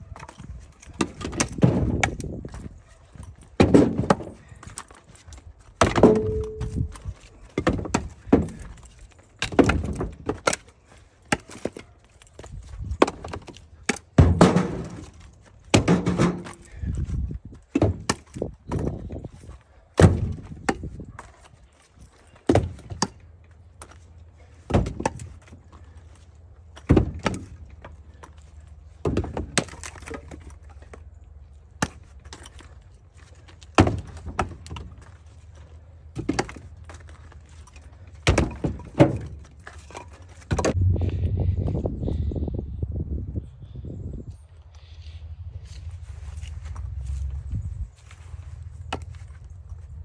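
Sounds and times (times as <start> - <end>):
firewood clunking into truck bed: 0.1 - 31.1, 31.7 - 40.8
low steady hum: 22.1 - 43.6.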